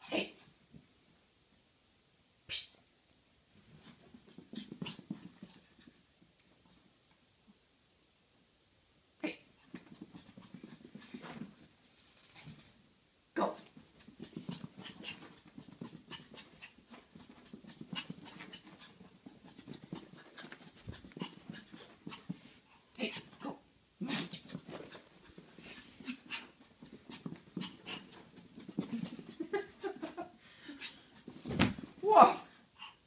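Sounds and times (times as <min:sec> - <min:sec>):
small dog panting: 0:09.6 - 0:11.6, 0:13.6 - 0:31.4, 0:32.6 - 0:33.0.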